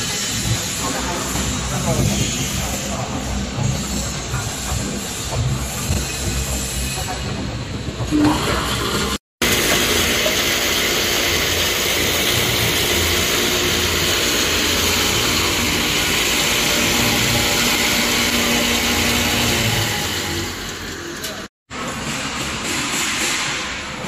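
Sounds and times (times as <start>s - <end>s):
bowl chopper knives whirring: 8.7s - 21.5s
steady machine hum: 8.8s - 21.9s.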